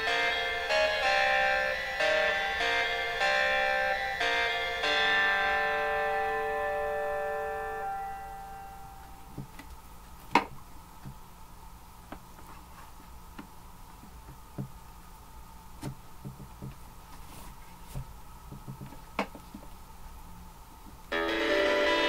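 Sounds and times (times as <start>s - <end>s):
guitar chord ringing: 0.0s - 9.4s, 21.1s - 22.0s
faint steady hum: 0.0s - 22.0s.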